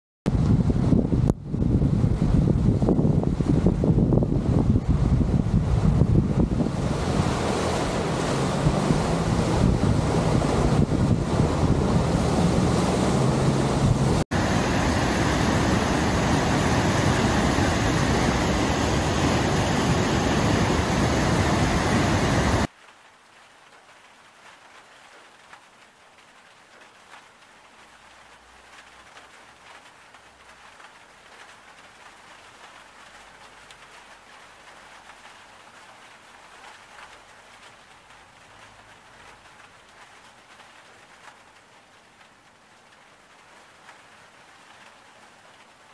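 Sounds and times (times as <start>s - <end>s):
wind buffeting microphone: 0.3s - 22.7s.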